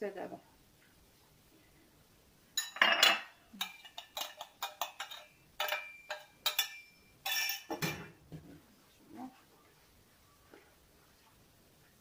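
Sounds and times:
bowls clinking and scraping: 2.6 - 8.2.

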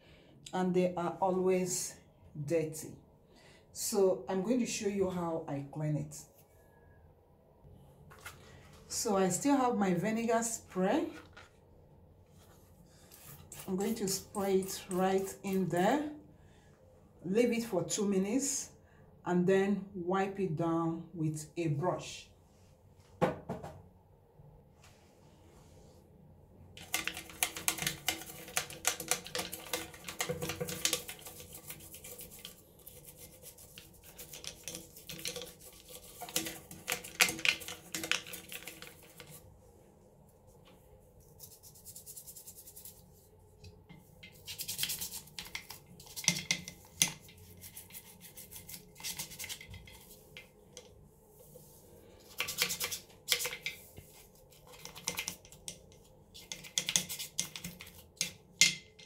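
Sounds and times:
toothbrush scrubbing metal drain: 13.0 - 15.8, 26.8 - 39.4, 41.2 - 43.1, 44.2 - 50.9, 52.2 - 58.5.

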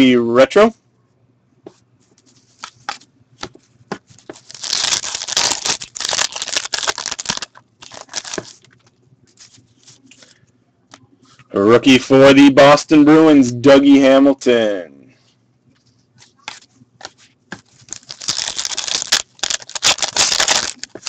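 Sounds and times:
cards rustling: 2.2 - 10.4, 16.2 - 21.0
foil wrapper crinkling: 4.2 - 8.9, 17.8 - 21.0.

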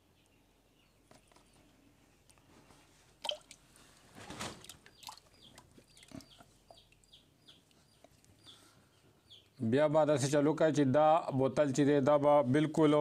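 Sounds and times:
chicks peeping: 4.9 - 9.6.

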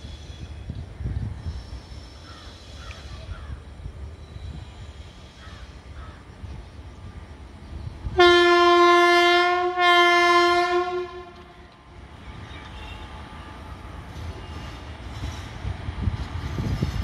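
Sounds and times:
train rumble: 0.0 - 17.0
locomotive horn blasts: 8.2 - 11.6.

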